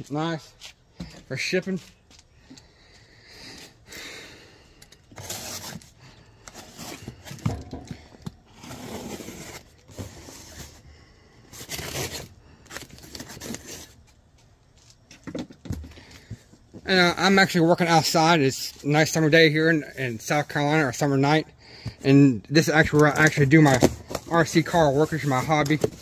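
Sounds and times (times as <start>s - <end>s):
packing tape tearing: 5.1s - 5.9s, 11.6s - 14.0s
box scraping on metal tabletop: 5.1s - 10.8s, 11.5s - 12.3s.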